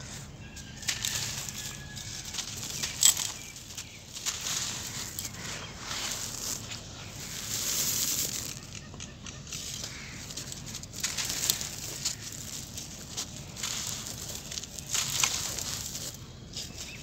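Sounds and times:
cement lumps crushed by hand: 9.8s - 16.2s.

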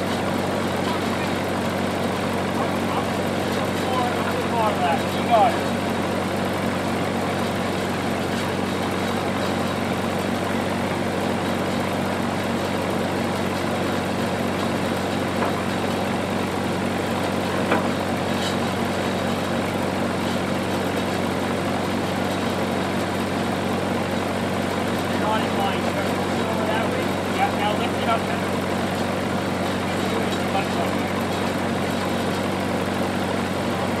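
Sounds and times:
engine running steadily: 0.0s - 34.0s.

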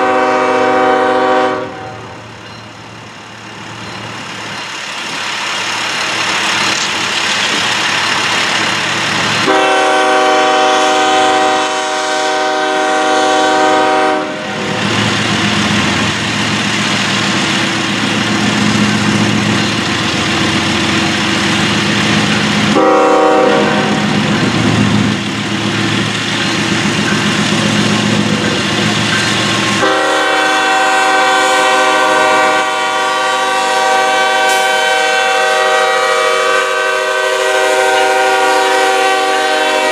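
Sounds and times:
train air horn blasts: 0.0s - 2.2s, 9.4s - 14.8s, 22.7s - 24.3s, 29.8s - 39.9s
rail noise: 0.0s - 39.9s
diesel engine rumbling: 1.7s - 33.9s.

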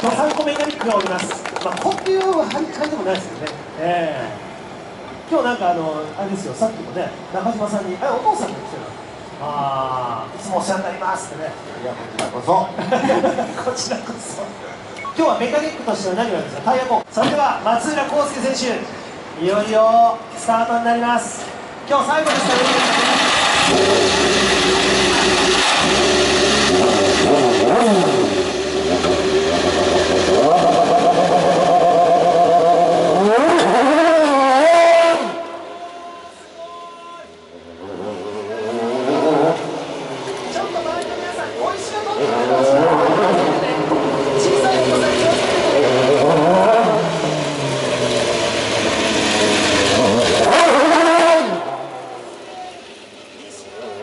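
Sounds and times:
race car engine revving: 22.2s - 35.7s, 37.6s - 53.4s.

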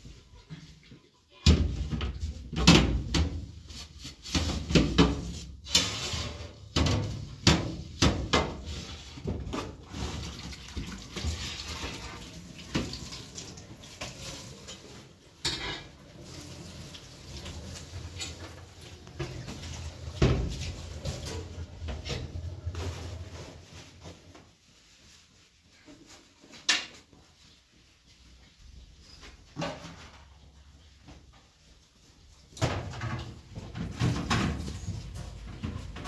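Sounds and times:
tap water running into sink: 10.2s - 14.8s.

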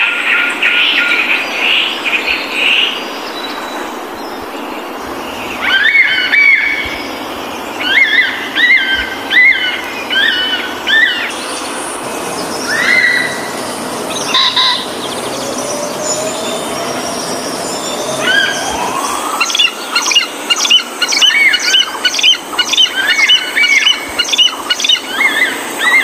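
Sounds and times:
bird rising call: 0.9s - 26.0s
bird chirps: 1.9s - 26.0s.

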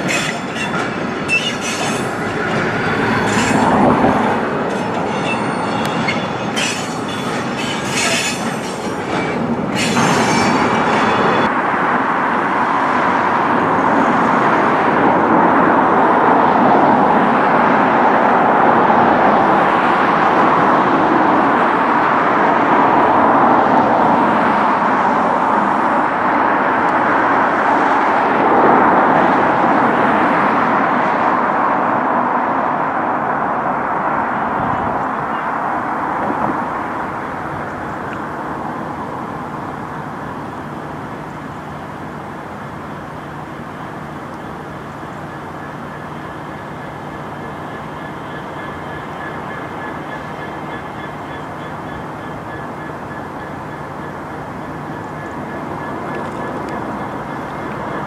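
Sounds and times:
train wheels squealing and clicking: 0.0s - 11.5s, 45.0s - 58.0s
freight train rolling past: 0.0s - 58.0s.

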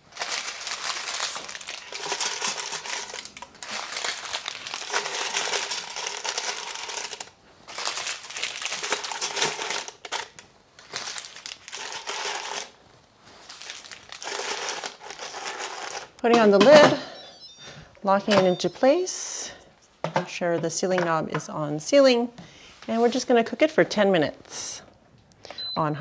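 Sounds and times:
paper packets crinkling: 0.0s - 16.4s.

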